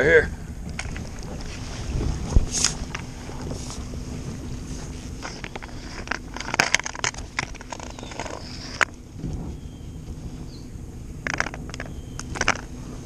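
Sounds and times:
steady low rumble: 0.0s - 13.0s
clicks knocks and scrapes: 4.8s - 9.4s, 11.2s - 12.7s.

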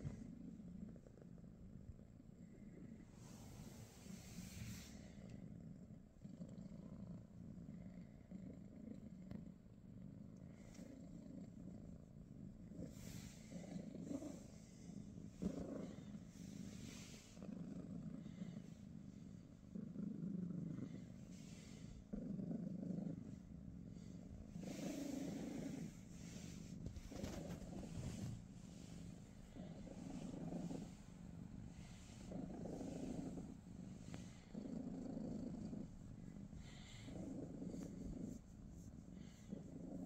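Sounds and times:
cat purring: 0.0s - 40.0s
duvet rustling: 24.6s - 31.0s.

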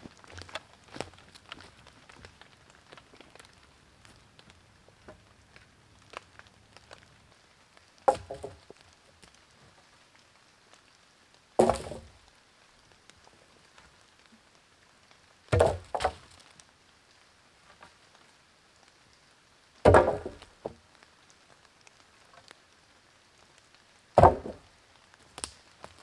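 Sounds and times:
wooden poles clattering onto pile: 8.1s - 8.7s, 11.6s - 12.1s, 15.6s - 16.3s, 19.9s - 20.8s, 24.2s - 24.6s.

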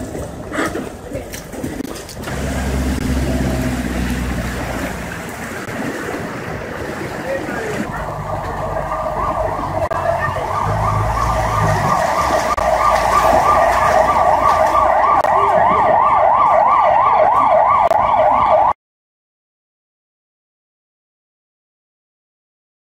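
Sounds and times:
emergency siren yelping: 7.9s - 18.8s.

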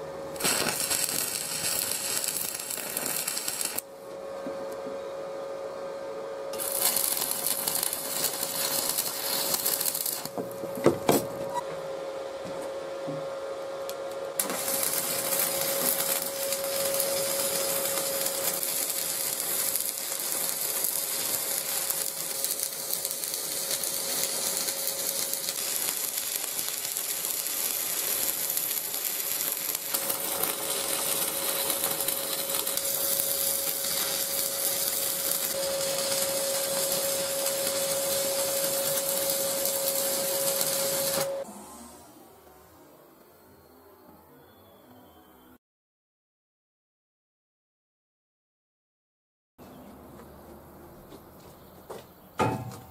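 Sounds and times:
arc welding crackling and hissing: 0.0s - 3.9s, 6.5s - 11.6s, 13.9s - 41.5s
steady hum: 0.0s - 26.4s
sharp knock: 52.4s - 52.9s.

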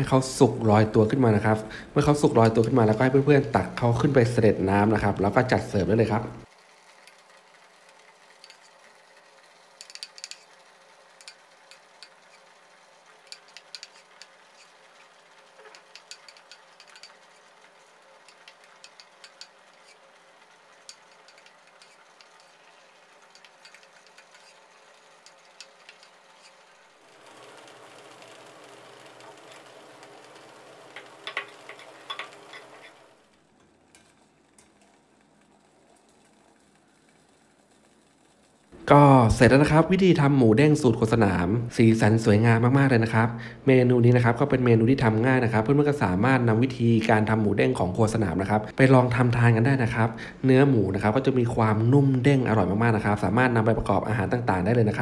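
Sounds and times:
metal bowl and utensil clicks: 9.8s - 10.5s, 15.6s - 17.2s, 18.3s - 20.0s, 31.0s - 33.0s.

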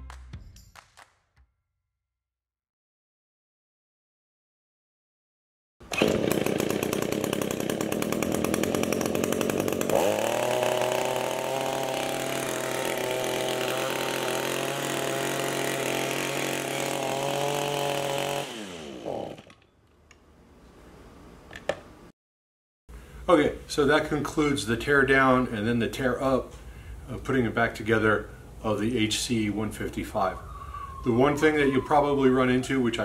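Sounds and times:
hedge trimmer engine running: 5.8s - 19.7s.

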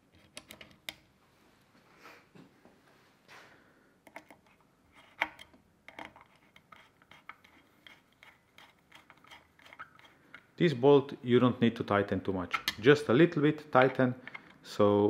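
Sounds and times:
small metal clicks and scrapes: 4.1s - 10.5s.

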